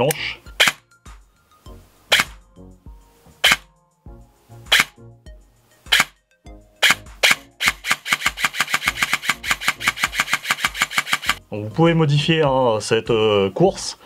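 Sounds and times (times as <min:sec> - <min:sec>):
airsoft gun dry-firing: 0:06.8 - 0:11.4.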